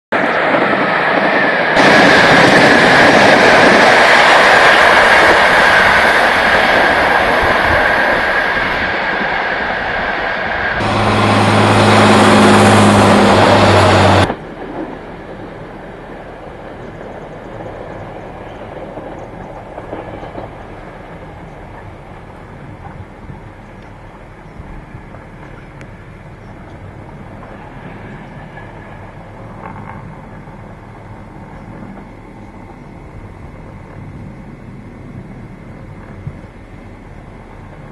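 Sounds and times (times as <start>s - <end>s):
train passing rush: 0.1s - 37.9s
distant rumble: 0.3s - 37.9s
steady low hum: 20.6s - 37.9s.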